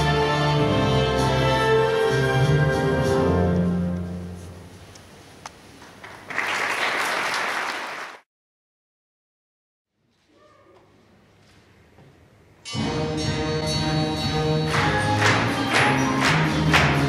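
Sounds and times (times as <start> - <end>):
audience applauding: 5.9 - 8.2, 14.7 - 17.0.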